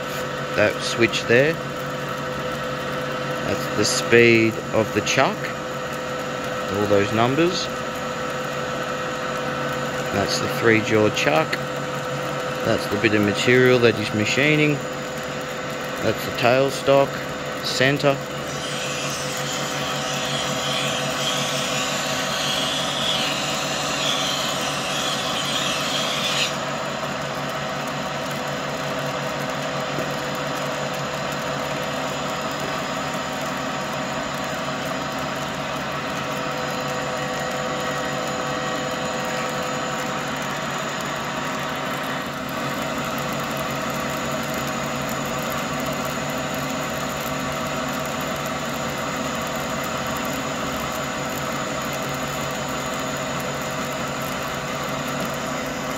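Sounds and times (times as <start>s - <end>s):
lathe humming: 0.0s - 55.9s
cutting tool squealing: 17.7s - 26.7s.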